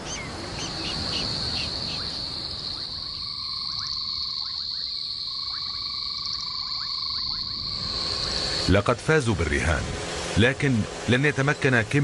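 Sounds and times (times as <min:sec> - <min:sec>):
high insect trill: 0:00.0 - 0:08.8
low frog trill: 0:01.5 - 0:08.6.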